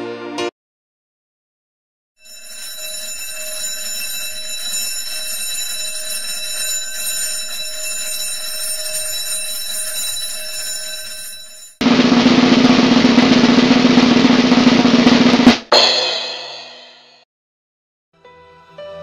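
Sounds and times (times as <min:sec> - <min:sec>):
ringing drone of high tones: 0:02.2 - 0:11.8.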